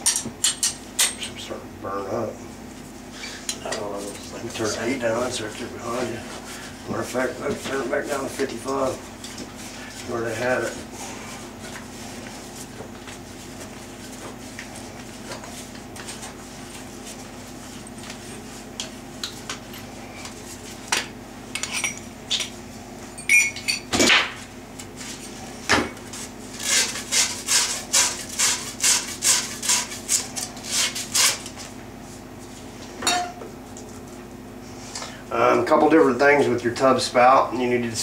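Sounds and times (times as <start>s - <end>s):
metal tools clinking: 23.2s - 23.9s.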